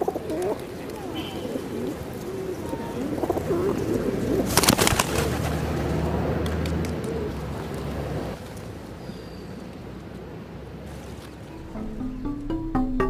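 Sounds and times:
doves cooing: 0:00.0 - 0:08.4
wings fluttering: 0:00.0 - 0:08.8.

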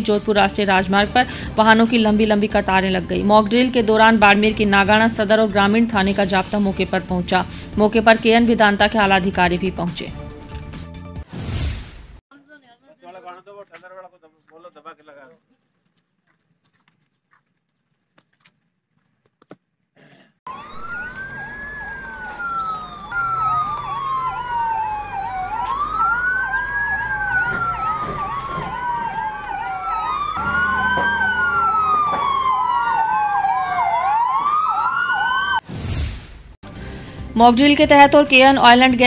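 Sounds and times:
fast yelping siren: 0:20.5 - 0:35.6
wailing siren: 0:20.5 - 0:35.6.

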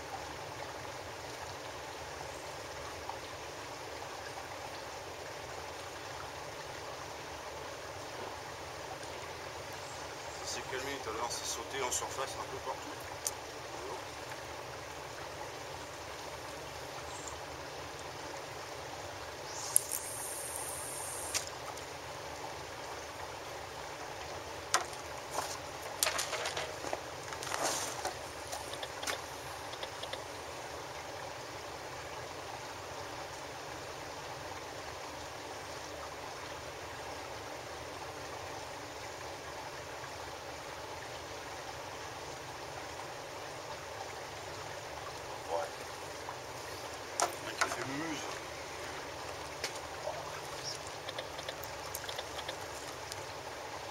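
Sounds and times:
seawater washing along quay: 0:10.4 - 0:16.9, 0:19.2 - 0:30.6, 0:44.7 - 0:53.9
short high hiss: 0:19.5 - 0:21.5.

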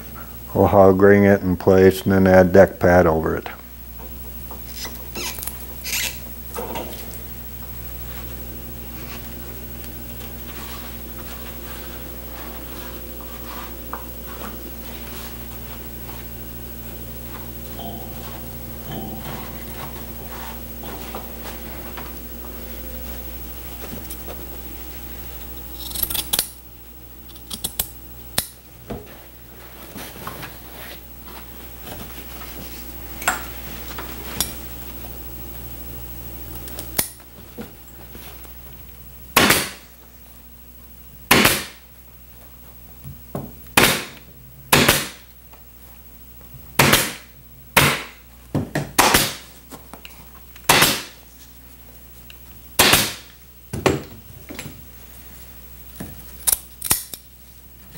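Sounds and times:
low hum: 0:00.0 - 0:40.8
pneumatic stapler shots: 0:39.4 - 0:39.8, 0:41.3 - 0:41.8, 0:43.8 - 0:45.2, 0:46.8 - 0:48.2, 0:49.0 - 0:49.5, 0:50.6 - 0:51.2, 0:52.8 - 0:53.3.

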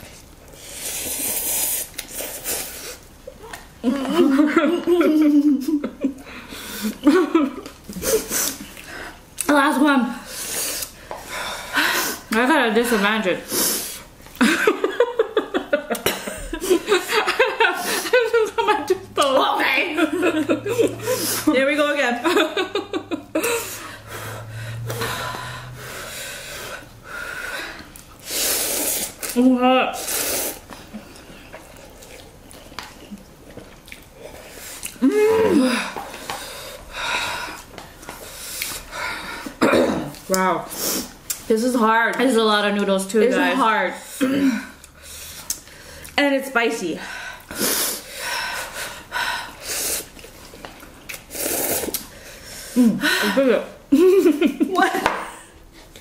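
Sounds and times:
person slurping noodles: 0:00.6 - 0:03.0, 0:28.2 - 0:29.4, 0:30.0 - 0:30.7, 0:51.2 - 0:52.2
people slurping noodles: 0:00.6 - 0:03.1, 0:27.8 - 0:32.3, 0:34.2 - 0:38.9, 0:49.5 - 0:53.1
people sniffing: 0:20.8 - 0:21.5, 0:23.4 - 0:29.3, 0:47.5 - 0:50.2, 0:51.3 - 0:53.3.

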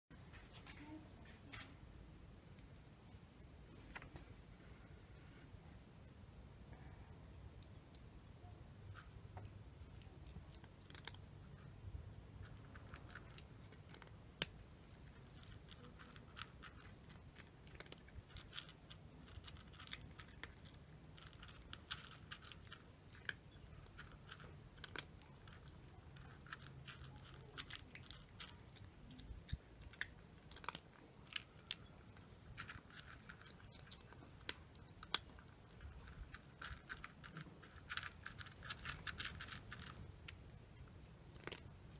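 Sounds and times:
cat chewing dry kibble: 0:08.7 - 0:41.9.

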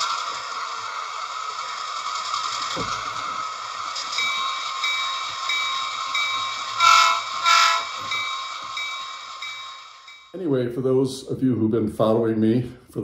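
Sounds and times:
steam hiss: 0:00.0 - 0:10.2
high ringing: 0:03.9 - 0:10.4
train whistle blasts: 0:06.8 - 0:08.0.

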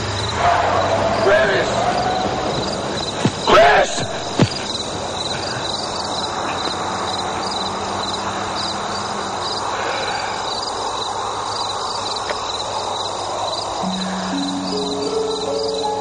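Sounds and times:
crickets chirping: 0:00.0 - 0:16.0
low sustained music note: 0:13.8 - 0:16.0.

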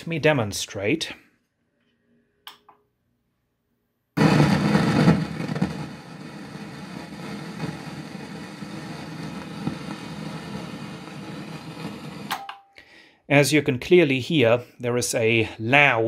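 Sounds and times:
amplifier speaker noise: 0:04.2 - 0:11.6.

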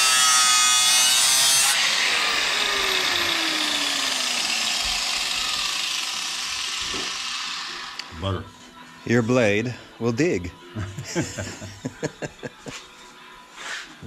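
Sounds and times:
angle grinder grinding steel: 0:00.0 - 0:08.2
grinder running with whine: 0:00.0 - 0:10.6.

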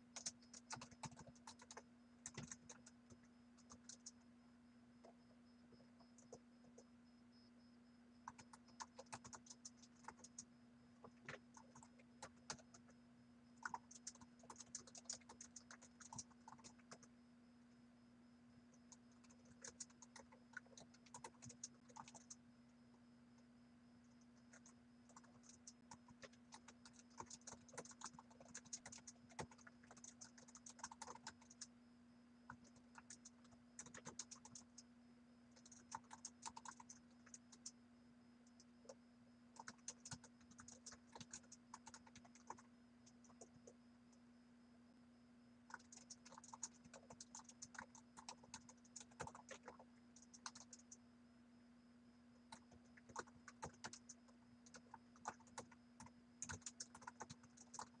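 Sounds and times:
steady low hum: 0:00.0 - 0:58.0
typing on a keyboard: 0:00.1 - 0:04.2, 0:08.2 - 0:13.0, 0:13.6 - 0:17.1, 0:18.8 - 0:22.4, 0:24.2 - 0:31.7, 0:32.5 - 0:34.9, 0:35.5 - 0:37.8, 0:39.6 - 0:43.8, 0:45.7 - 0:51.0, 0:52.5 - 0:58.0.

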